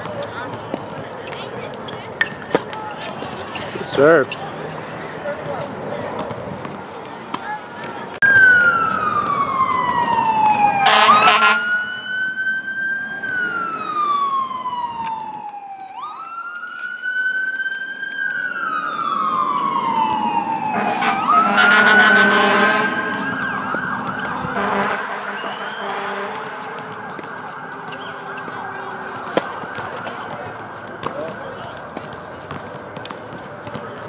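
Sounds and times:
emergency vehicle siren wailing: 0:08.1 - 0:33.8.

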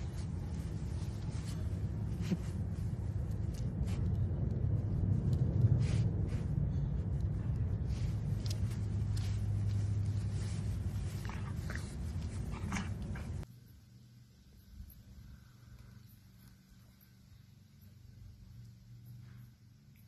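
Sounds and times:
puppy snuffling: 0:00.0 - 0:13.4
puppy rustling in grass: 0:00.0 - 0:13.5
low steady rumble: 0:00.0 - 0:20.0.

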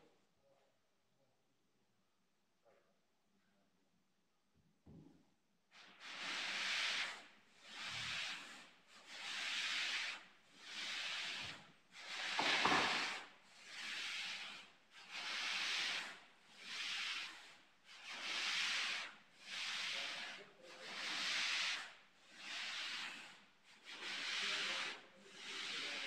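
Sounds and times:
sanding board rasping: 0:05.8 - 0:26.0.

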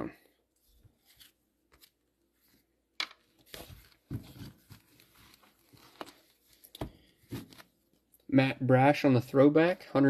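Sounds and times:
plastic and card rustling: 0:00.6 - 0:08.2.

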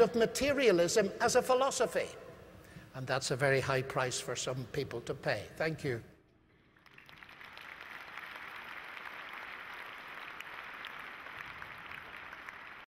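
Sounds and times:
audience applauding: 0:06.8 - 0:12.9.

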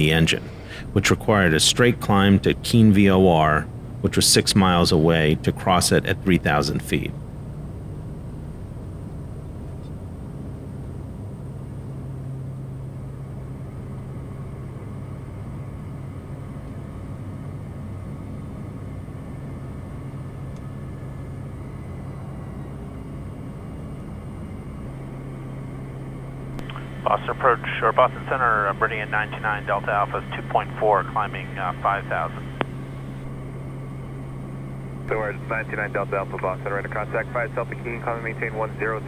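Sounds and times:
turboprop engine drone: 0:00.0 - 0:39.0.

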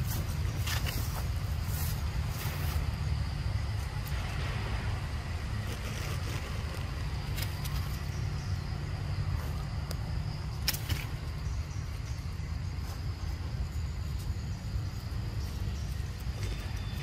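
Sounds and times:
high insect drone: 0:00.0 - 0:17.0.

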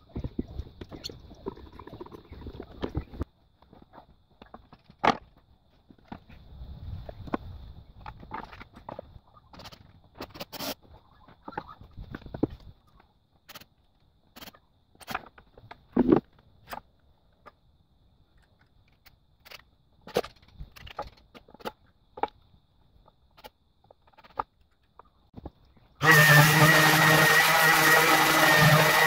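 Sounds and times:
electric sander running: 0:26.0 - 0:29.0.

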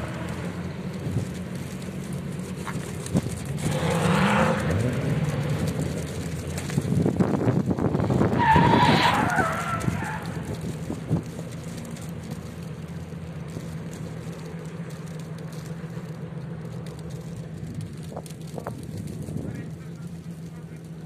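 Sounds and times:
tyres squealing on asphalt: 0:00.0 - 0:13.0
car engine revving: 0:00.0 - 0:21.0.

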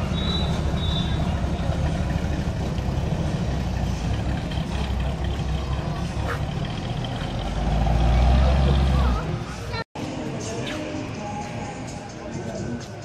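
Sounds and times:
car engine rumble driving past: 0:00.0 - 0:09.5.

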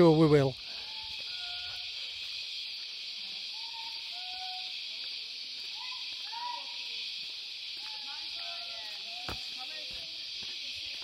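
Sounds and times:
cicada chorus drone: 0:00.0 - 0:11.0
hooting whistle calls: 0:00.6 - 0:02.2, 0:03.4 - 0:05.0.

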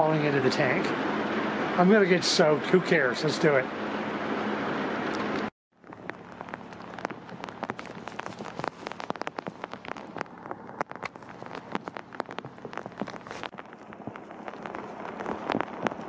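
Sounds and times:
sharp raindrop ticks: 0:05.8 - 0:16.0
steady rain falling: 0:05.8 - 0:16.0.

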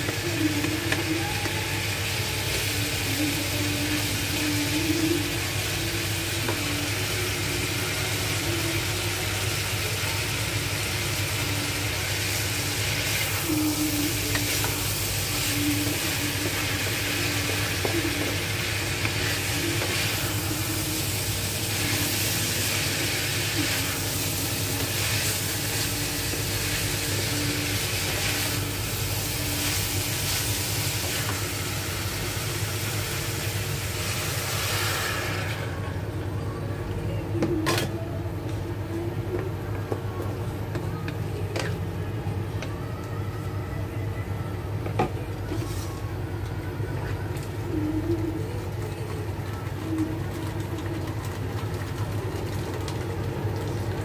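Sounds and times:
vegetables sizzling in a wok: 0:00.0 - 0:35.9.

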